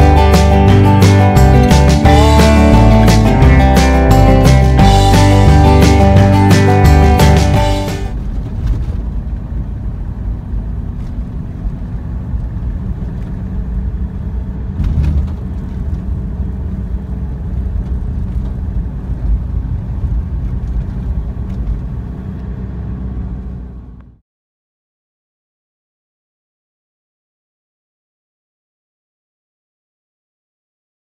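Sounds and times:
car engine and tyre rumble: 0:00.0 - 0:24.2.

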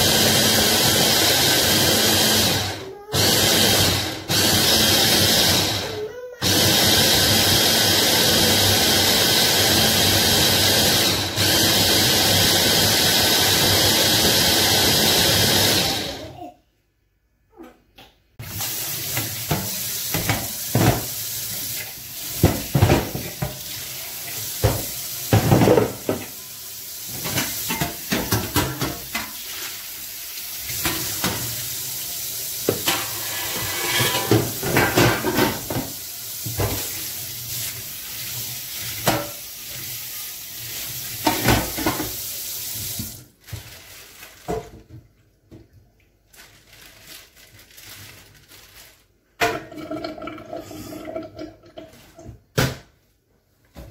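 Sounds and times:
kitchen tap running into sink: 0:00.0 - 0:16.5, 0:18.4 - 0:45.8, 0:49.4 - 0:52.6
items knocking against sink: 0:22.3 - 0:23.6, 0:24.6 - 0:26.3.

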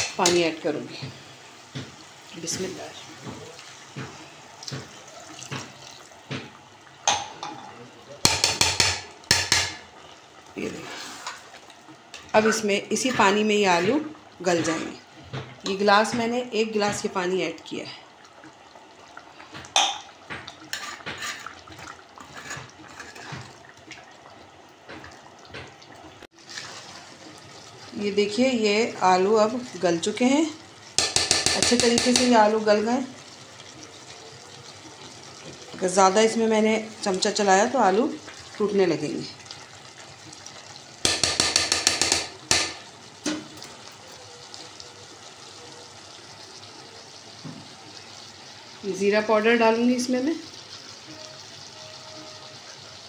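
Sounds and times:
water pouring into a pot: 0:00.6 - 0:53.0
sloshing liquid: 0:02.4 - 0:07.4
metal utensil scraping a pot: 0:10.6 - 0:11.5, 0:20.7 - 0:23.6.

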